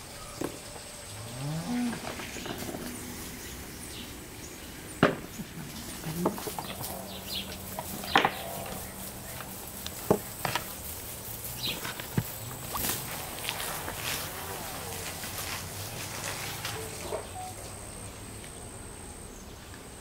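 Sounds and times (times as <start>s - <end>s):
apples knocking on bowl: 5.0s - 10.8s.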